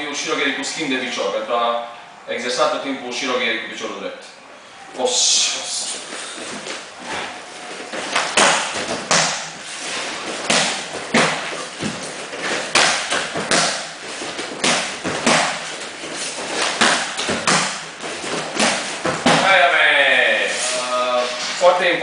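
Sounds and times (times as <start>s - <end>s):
kicks and punches thudding into pad: 14.6s - 15.7s.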